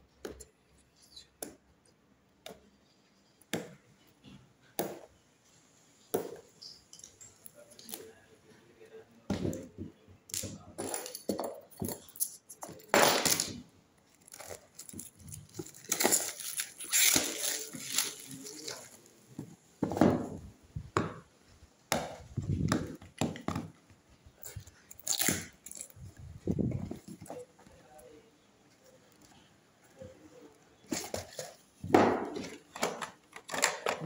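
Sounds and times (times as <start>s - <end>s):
plastic wrapping crinkling: 12.0s - 19.3s.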